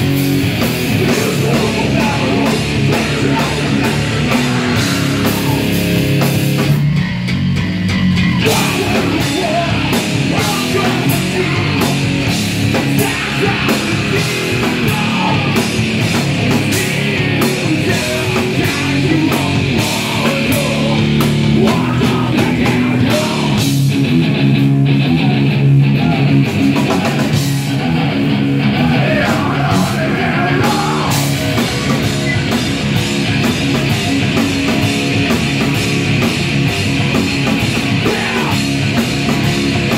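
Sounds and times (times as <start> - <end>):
drums with cymbal crashes: 0.0 - 24.1, 30.6 - 39.9
electric guitar and bass: 0.0 - 39.9
vocalist shouting: 38.0 - 38.7.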